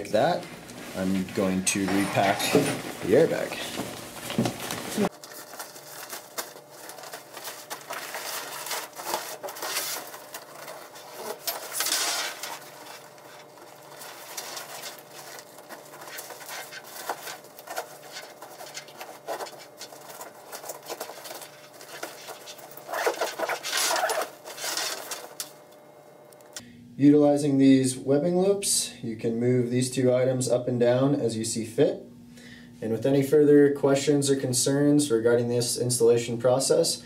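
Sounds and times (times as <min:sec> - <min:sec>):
scuffs and handling noise: 0:00.0 - 0:25.7
nylon fabric rustling and crinkling: 0:00.2 - 0:25.4.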